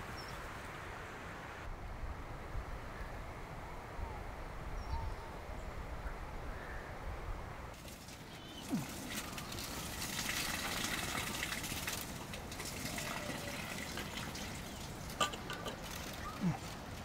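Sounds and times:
water pouring into metal pot: 7.8 - 16.2.

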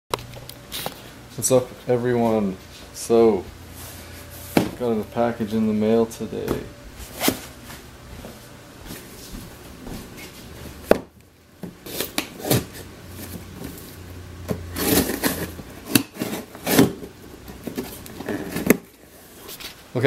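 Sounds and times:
cardboard scraping and rubbing: 14.7 - 19.8.

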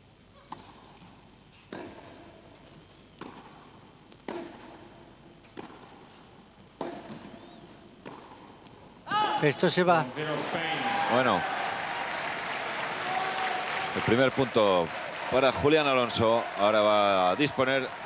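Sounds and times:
racket hitting tennis ball: 1.7 - 2.2, 3.2 - 3.6, 4.2 - 6.1, 6.8 - 7.4, 8.0 - 8.6.

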